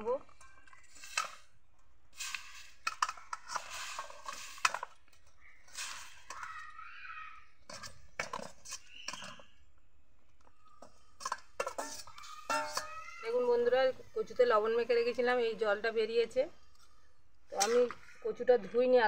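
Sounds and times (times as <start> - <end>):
bowl scraping on pan rim: 11.2 - 13.0.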